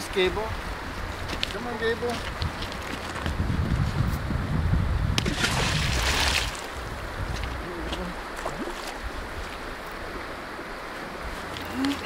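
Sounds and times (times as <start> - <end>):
rock splashing into river: 5.2 - 6.7.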